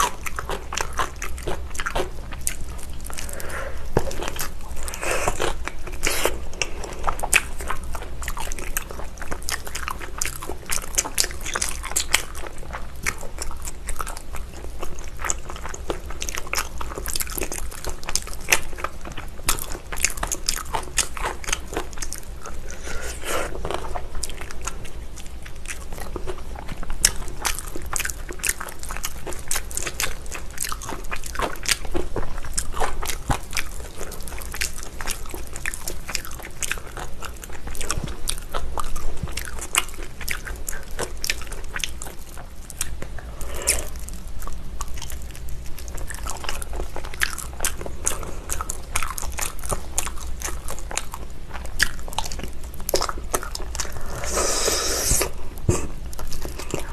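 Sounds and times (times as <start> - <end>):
close-miked chewing and gnawing: 0.0 - 56.9.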